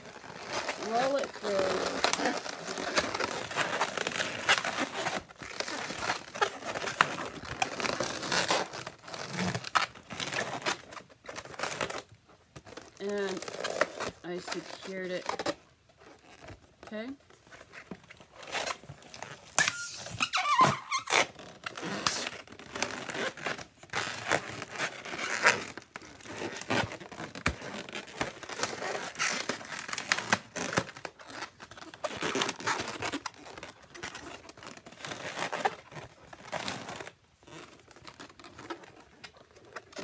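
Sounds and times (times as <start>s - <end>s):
balloons rubbing and squeaking: 0.0s - 40.0s
balloon squeal: 0.1s - 9.6s, 18.5s - 38.7s.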